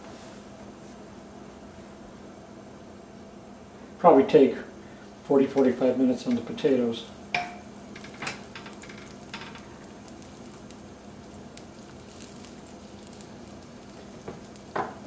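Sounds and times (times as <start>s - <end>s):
butter and oil sizzling in pans: 6.3s - 15.0s
utensil clinking against pan: 7.3s - 9.6s.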